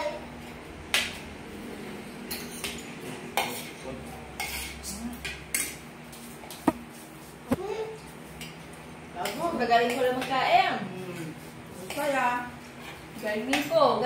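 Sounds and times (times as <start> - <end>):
cutlery clinking on plates: 2.3 - 3.8, 4.4 - 5.8.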